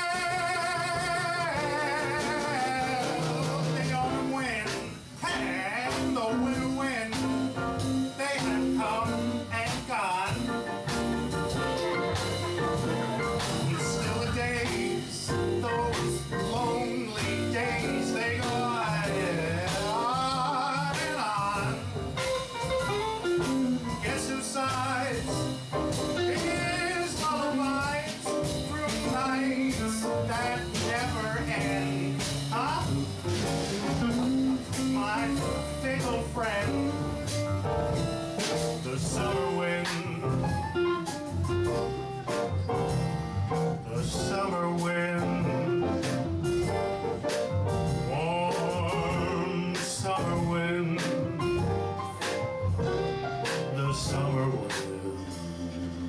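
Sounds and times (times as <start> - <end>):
person singing: 0.0 - 7.3, 13.5 - 21.9, 38.8 - 40.6, 43.8 - 46.2, 48.0 - 51.4, 53.4 - 56.0
small jazz band playing: 0.0 - 56.0.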